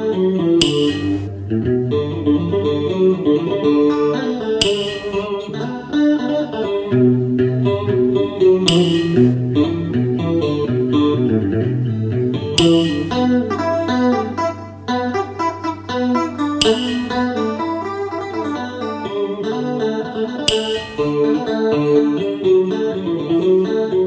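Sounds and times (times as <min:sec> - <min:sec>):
electric guitar melody: 0:00.0 - 0:24.0
bright cymbal-like hit: 0:00.6 - 0:01.4, 0:04.6 - 0:05.5, 0:08.7 - 0:09.4, 0:12.6 - 0:13.5, 0:16.6 - 0:17.6, 0:20.5 - 0:21.3
low bass line: 0:08.7 - 0:10.2, 0:11.6 - 0:13.6, 0:16.6 - 0:17.5.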